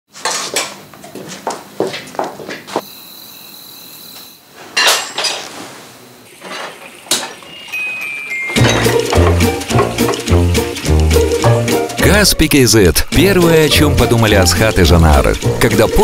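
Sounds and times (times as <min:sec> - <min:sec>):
ceramic dishes clinking: 0:04.8 - 0:05.4, 0:06.4 - 0:10.2.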